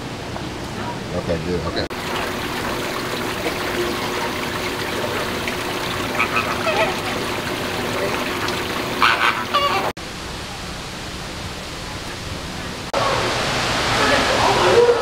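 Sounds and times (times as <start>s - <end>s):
water trickling: 1.9s - 9.9s
flamingos honking: 2.0s - 10.0s.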